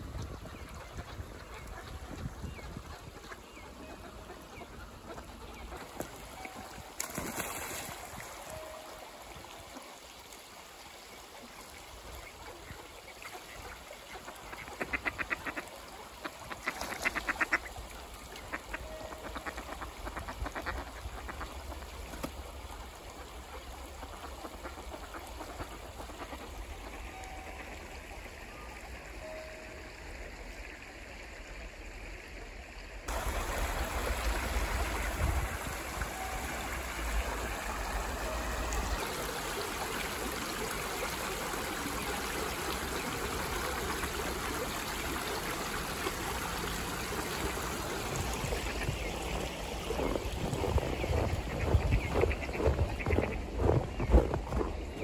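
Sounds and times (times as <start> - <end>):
stream water rushing: 3.7 - 55.0
ducks quacking: 14.2 - 17.8, 48.3 - 55.0.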